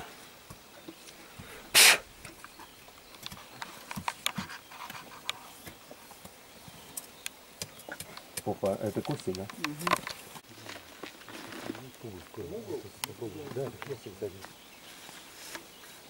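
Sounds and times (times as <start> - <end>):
loud short rasp: 1.7 - 2.0
hand tools scraping soil: 10.6 - 12.0, 13.4 - 16.0.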